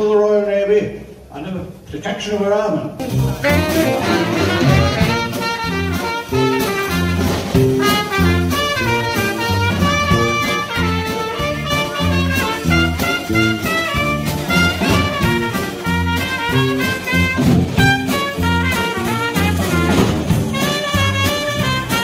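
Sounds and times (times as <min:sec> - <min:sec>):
swing big band music: 0:02.9 - 0:22.0.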